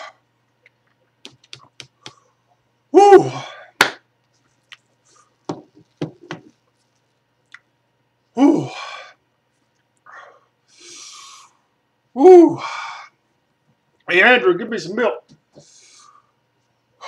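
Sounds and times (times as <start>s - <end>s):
small clicks and taps: 0.6s - 2.2s
man exhaling in pain: 3.0s - 3.8s, 8.4s - 9.2s.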